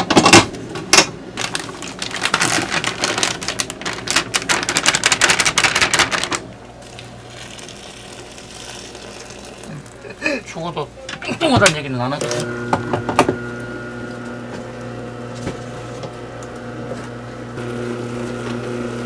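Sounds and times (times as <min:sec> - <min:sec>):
water pouring from kettle: 0:06.8 - 0:10.0.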